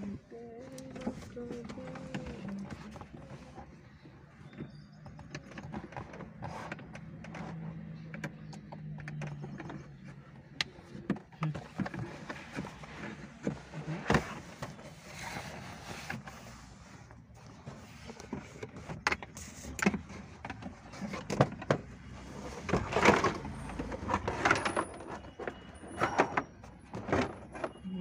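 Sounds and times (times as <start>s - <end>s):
clicks and knocks on car parts: 0.7s - 14.8s.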